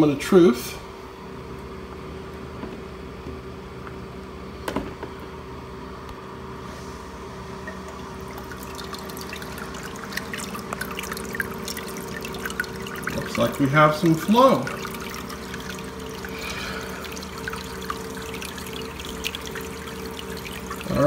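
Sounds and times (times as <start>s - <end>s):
steady equipment hum: 0.0s - 21.0s
water splashing and trickling: 7.8s - 21.0s.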